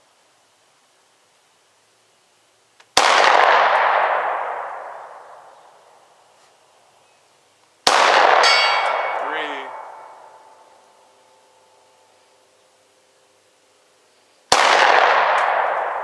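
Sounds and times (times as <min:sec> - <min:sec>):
handgun shots with echo: 0:07.9 - 0:10.1, 0:14.5 - 0:16.0
steel target ringing: 0:08.4 - 0:10.7.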